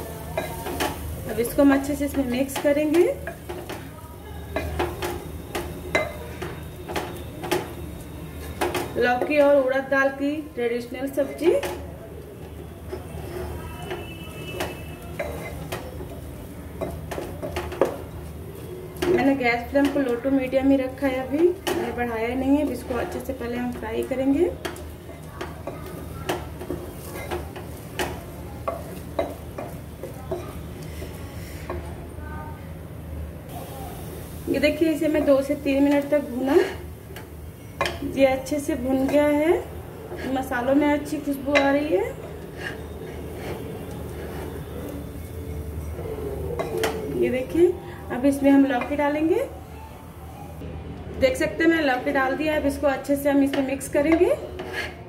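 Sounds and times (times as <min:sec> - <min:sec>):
light sizzle: 0:00.0 - 0:55.0
wooden spatula scraping a pot: 0:12.9 - 0:16.2, 0:21.5 - 0:32.0, 0:35.3 - 0:37.3, 0:40.0 - 0:47.1, 0:54.1 - 0:55.0.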